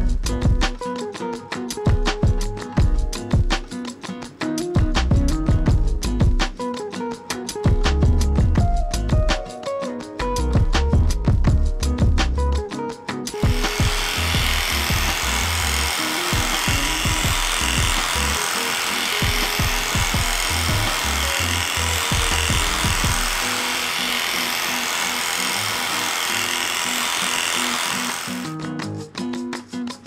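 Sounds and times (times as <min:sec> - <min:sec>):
background music: 0:00.0 - 0:30.0
electric dog clippers running: 0:13.4 - 0:28.6.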